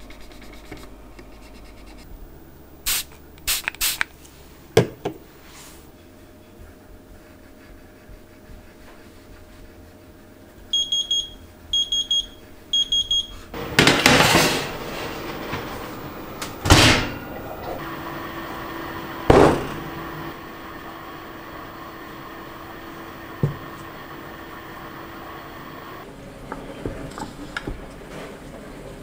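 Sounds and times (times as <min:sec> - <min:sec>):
steady low hum: 0:13.4 - 0:26.1.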